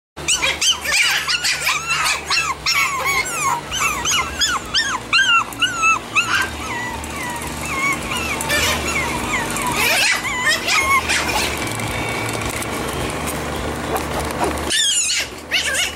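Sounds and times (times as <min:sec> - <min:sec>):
puppies yipping and squealing: 0:00.2 - 0:15.9.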